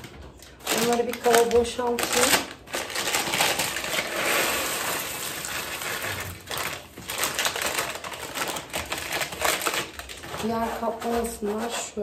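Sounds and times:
plastic packets crinkling: 0.0s - 11.6s
seeds pouring into a plastic tub: 3.2s - 7.3s.

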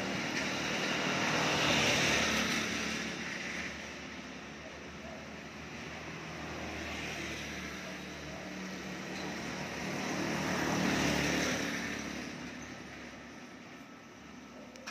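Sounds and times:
vehicle passing by: 0.0s - 4.2s, 5.6s - 13.4s.

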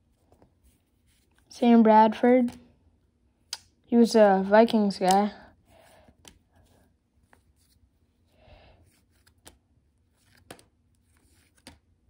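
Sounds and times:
paper cards ticking and rustling: 8.9s - 12.0s.

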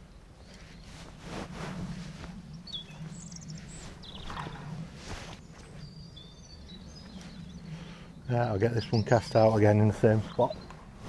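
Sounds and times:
small birds chirping: 0.0s - 11.0s
rustling: 0.4s - 6.0s
soft footsteps: 0.6s - 5.9s.

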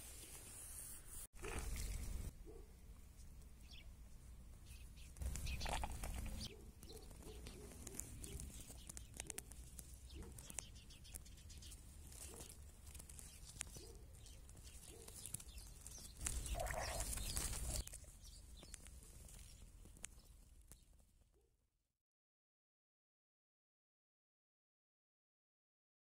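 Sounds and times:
crackling and clicking in soil: 1.4s - 21.5s.

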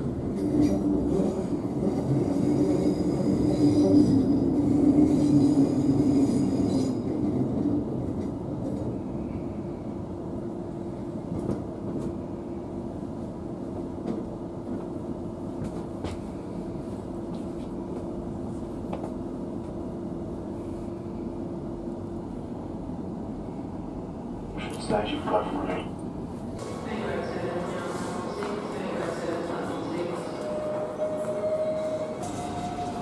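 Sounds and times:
train wheels rumbling on rails: 10.2s - 21.2s.

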